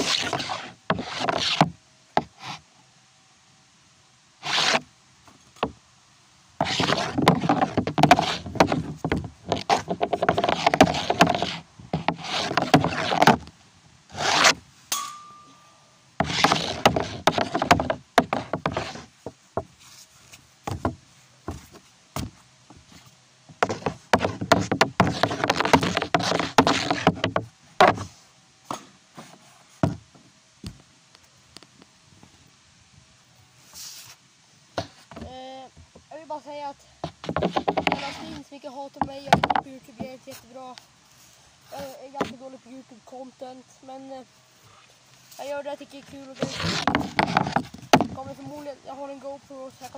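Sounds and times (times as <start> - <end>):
hockey pucks knocking on wooden board: 6.6 - 13.4, 16.2 - 19.7, 20.7 - 22.4, 23.6 - 28.1, 37.0 - 38.4, 39.0 - 40.1, 46.4 - 48.4.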